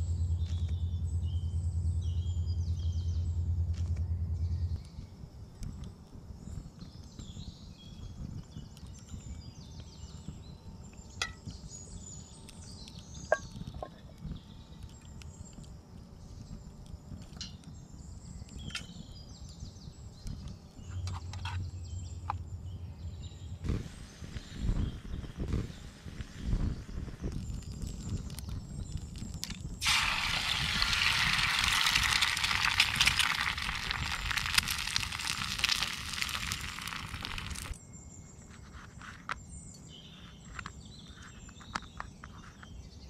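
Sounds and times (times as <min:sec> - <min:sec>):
wind rumble on microphone: 0:00.1 - 0:21.1, 0:21.8 - 0:37.8
wood fire crackling: 0:27.3 - 0:37.8.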